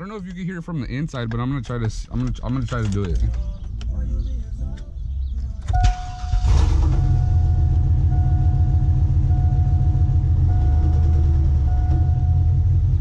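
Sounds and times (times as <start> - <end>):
pickup engine idling: 3.5 - 13.0
warning chime beeping: 7.0 - 13.0.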